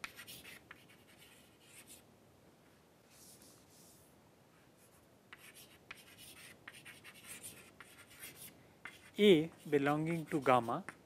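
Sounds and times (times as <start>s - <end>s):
chalk scratching on chalkboard: 0.0s - 2.0s, 5.3s - 11.0s.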